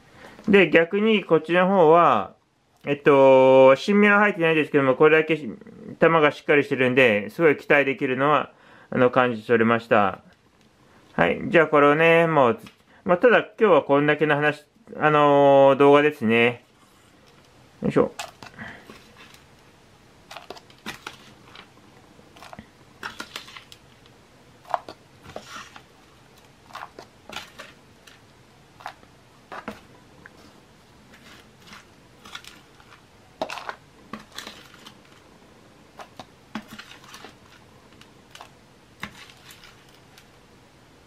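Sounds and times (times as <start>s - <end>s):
spoon scraping potting mix: 18.1s - 19.6s, 20.2s - 35.3s, 35.9s - 40.3s
grains clicking against plastic: 20.2s - 30.4s, 31.1s - 35.3s, 36.0s - 40.3s.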